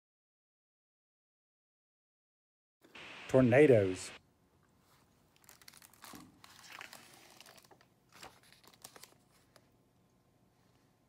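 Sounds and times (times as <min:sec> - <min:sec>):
book pages rustling: 0:04.8 - 0:09.7.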